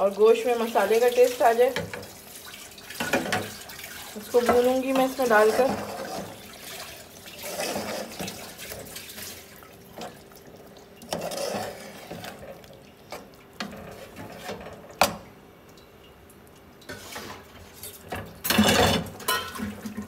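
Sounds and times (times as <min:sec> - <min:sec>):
spoon stirring thick gravy: 0:00.3 - 0:15.8.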